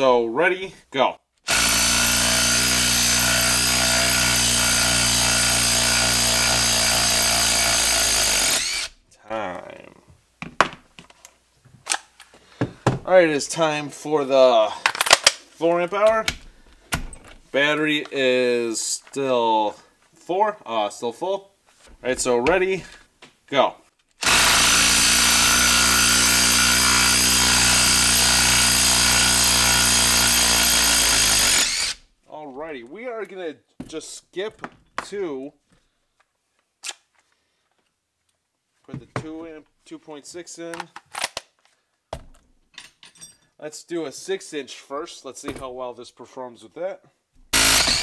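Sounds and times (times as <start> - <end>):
impact driver hammering: 24.2 - 32.0, 47.5 - 48.0.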